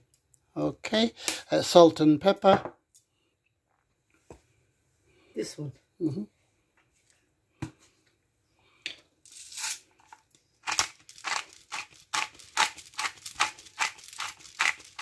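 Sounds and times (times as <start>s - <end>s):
pepper mill grinding: 9.3s - 15.0s.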